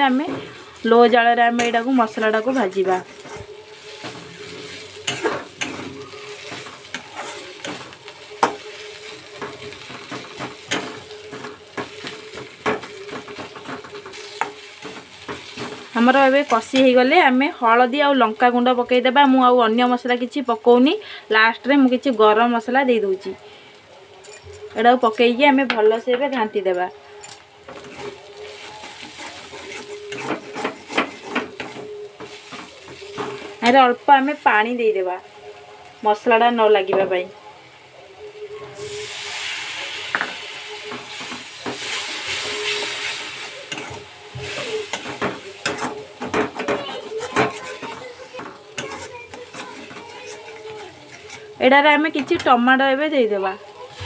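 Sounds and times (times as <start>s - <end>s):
hot oil sizzling: 0.0s - 54.0s
metal spatula scraping pan: 0.1s - 17.0s, 27.7s - 33.9s, 40.9s - 52.6s.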